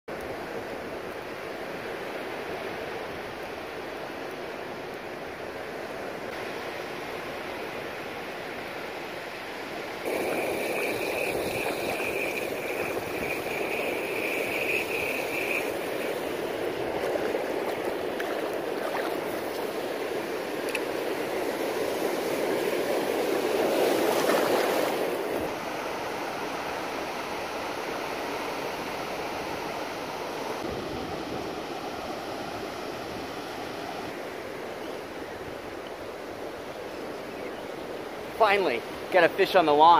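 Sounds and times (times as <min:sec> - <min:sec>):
surf washing on beach: 0:00.1 - 0:39.9
thin steady high tone: 0:10.1 - 0:16.4.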